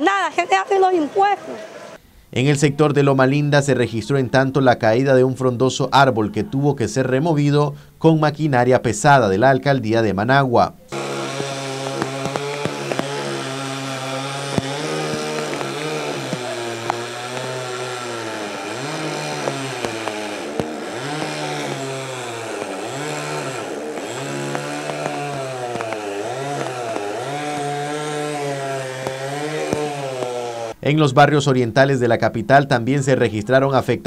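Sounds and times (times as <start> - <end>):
chainsaw cutting wood: 10.9 - 30.8.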